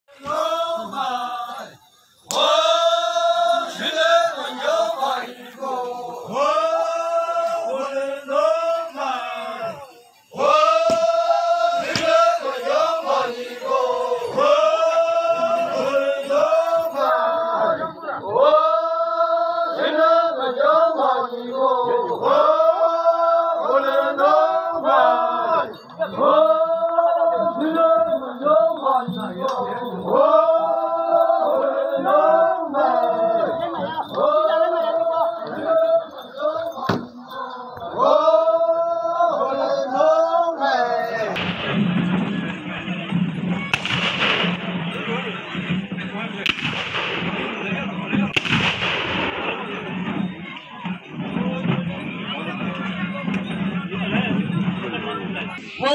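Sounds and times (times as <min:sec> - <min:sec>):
men chanting in unison: 0:00.1 - 0:42.4.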